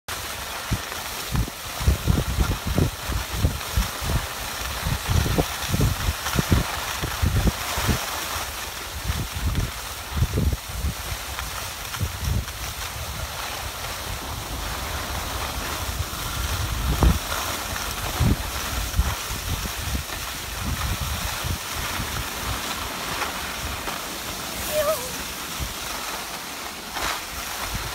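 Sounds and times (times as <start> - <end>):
skis sliding over snow: 0.1 - 27.9
wind buffeting microphone: 14.0 - 22.6.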